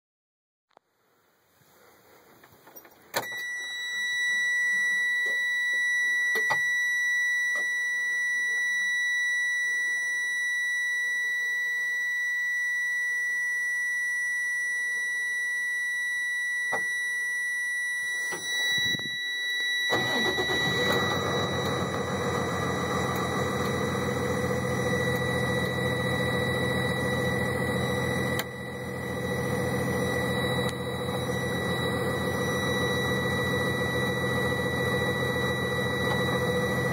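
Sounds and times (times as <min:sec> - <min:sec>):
warning buzzer high tone: 0:03.2 - 0:36.9
diesel engine idling: 0:19.9 - 0:25.6.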